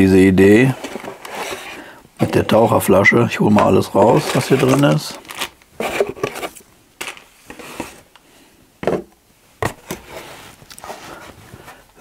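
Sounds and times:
cardboard rustling: 0.5 - 8.1.

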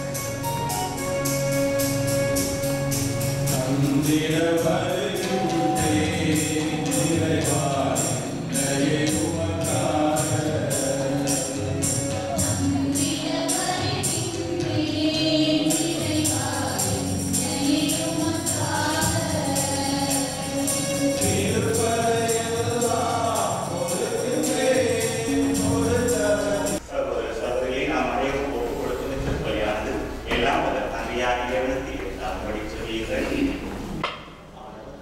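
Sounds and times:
high percussion beat: 0.0 - 26.8
keyboard accompaniment: 0.0 - 26.9
group singing a hymn: 3.5 - 26.8.

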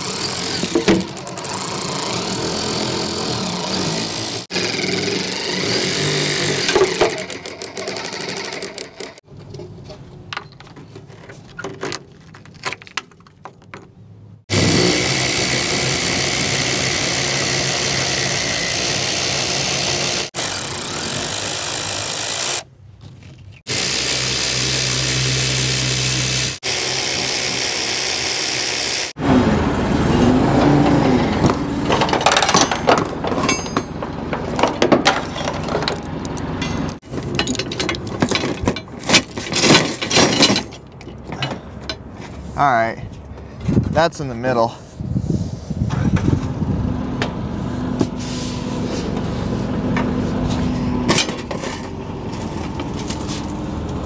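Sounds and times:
forklift engine running: 23.7 - 38.2
scattered clicks and knocks: 30.8 - 42.0.

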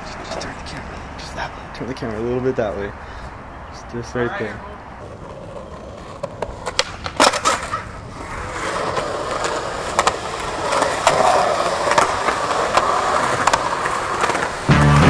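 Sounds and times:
skateboard wheels rolling on concrete: 0.0 - 15.0
skateboard clacks: 5.0 - 15.0.

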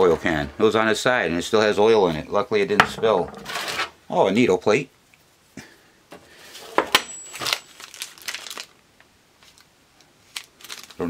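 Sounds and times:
plastic bags crinkling: 7.2 - 8.8, 9.4 - 11.0.

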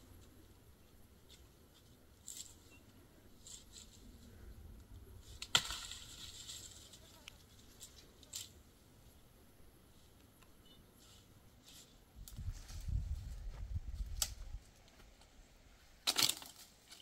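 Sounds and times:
leaves rustling: 0.0 - 8.9, 11.0 - 17.0
sharp branch crack: 5.3 - 7.1, 14.1 - 14.5, 16.0 - 17.0
twigs snapping: 14.1 - 15.0, 16.0 - 17.0.

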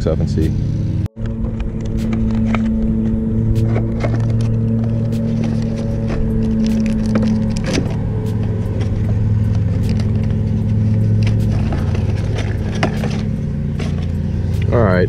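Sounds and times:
steady low hum: 0.0 - 15.0
plastic and cardboard crinkling: 3.6 - 8.0, 8.7 - 14.3.

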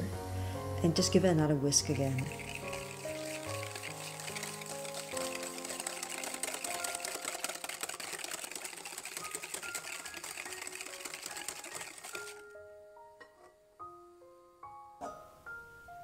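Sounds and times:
whisk clattering in glass bowl: 1.9 - 12.5.

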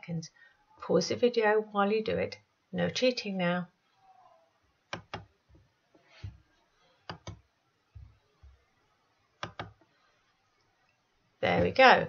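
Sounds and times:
mouse buttons clicking: 4.9 - 5.3, 7.1 - 7.4, 9.4 - 9.8.

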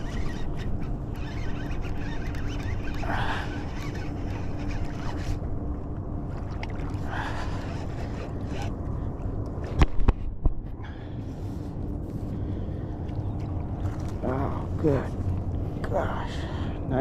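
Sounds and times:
fishing reel handling rumble: 0.0 - 10.6.

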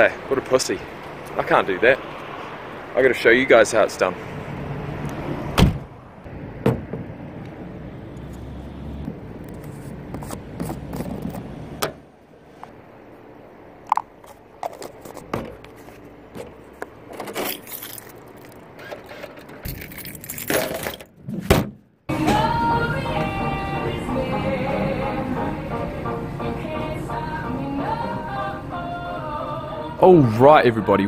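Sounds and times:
plastic containers being handled: 13.9 - 21.6.

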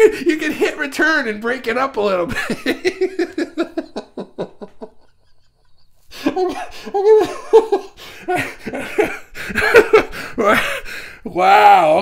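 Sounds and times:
man laughing: 0.0 - 0.9, 2.3 - 11.0.

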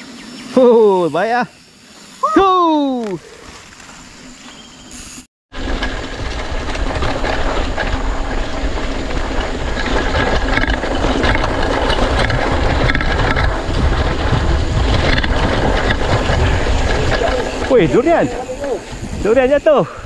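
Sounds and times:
bike tyres rattling over bumps: 5.5 - 20.0
wind rumbling on microphone: 5.5 - 20.0.

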